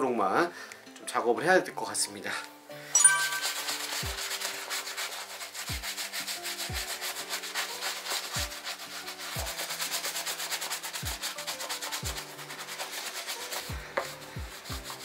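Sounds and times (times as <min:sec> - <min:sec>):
brisk rubbing on leather: 0:03.6 - 0:15.0.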